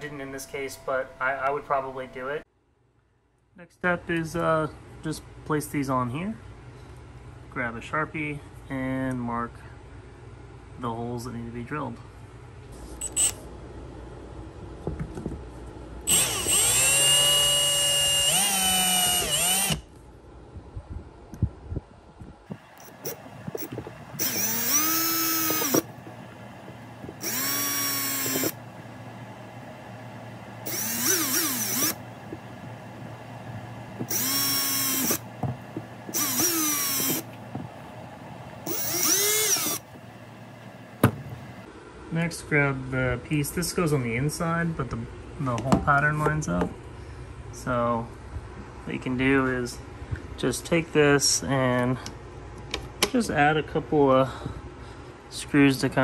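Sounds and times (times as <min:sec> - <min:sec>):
cordless drill boring through plastic: 0:16.1 - 0:19.8, 0:23.6 - 0:25.9, 0:27.1 - 0:28.6, 0:30.6 - 0:32.0, 0:34.0 - 0:35.2, 0:36.1 - 0:37.3, 0:38.7 - 0:39.8.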